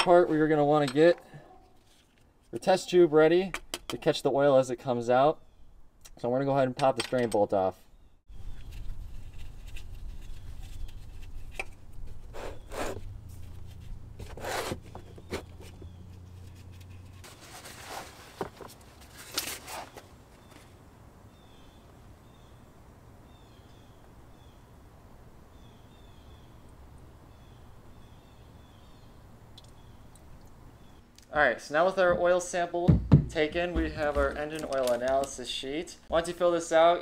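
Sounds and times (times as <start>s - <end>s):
gloved hands rustling and scraping: 1.5s - 2.8s, 8.3s - 20.8s, 33.4s - 35.8s.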